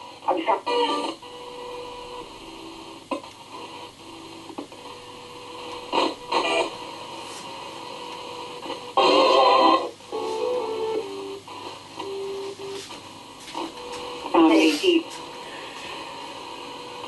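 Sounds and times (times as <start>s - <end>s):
fragments of broadcast sound: 0.0s - 17.0s
static hiss: 0.0s - 17.0s
loud burst of radio noise: 5.5s - 9.9s.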